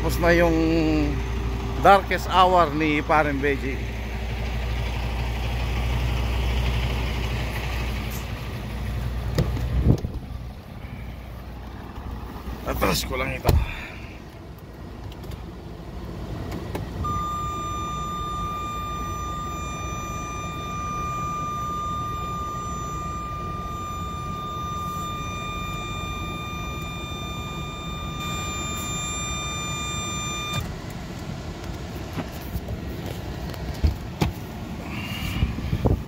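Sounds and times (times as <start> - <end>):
vehicle engine low rumble: 0.0 - 36.0
continuous high parking sensor beep: 17.0 - 30.6.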